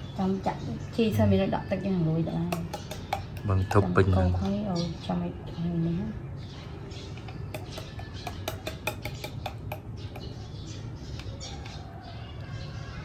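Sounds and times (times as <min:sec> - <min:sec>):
spoon clicking on steel bowl: 0:02.4 - 0:03.5, 0:07.2 - 0:10.4.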